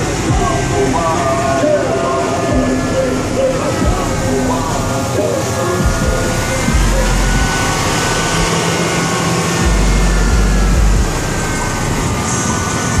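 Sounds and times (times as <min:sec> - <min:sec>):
steady noise haze: 0:00.0 - 0:13.0
subwoofer playing deep bass music: 0:00.0 - 0:13.0.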